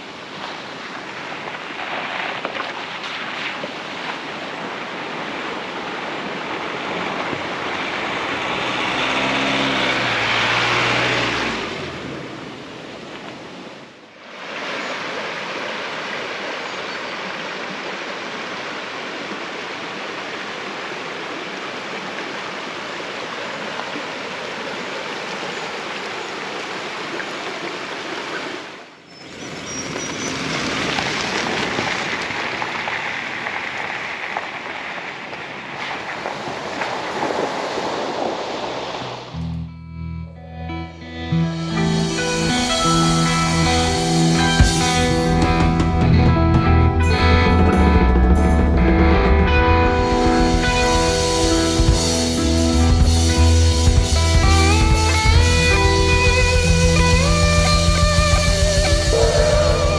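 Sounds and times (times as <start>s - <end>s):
river rushing: 0.0s - 39.5s, 41.0s - 46.3s, 47.0s - 59.9s
low drone: 39.4s - 59.9s.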